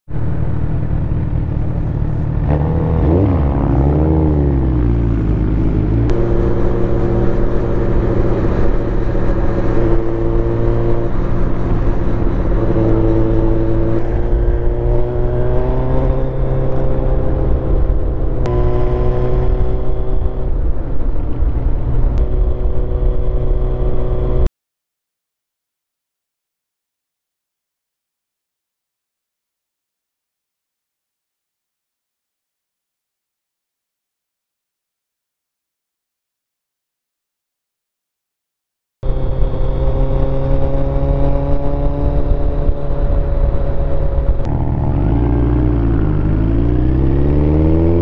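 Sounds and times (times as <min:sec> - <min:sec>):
motorcycle engine revving: 0:00.1 - 0:24.5, 0:39.0 - 0:48.0
wind and road noise: 0:00.1 - 0:24.5, 0:39.0 - 0:48.0.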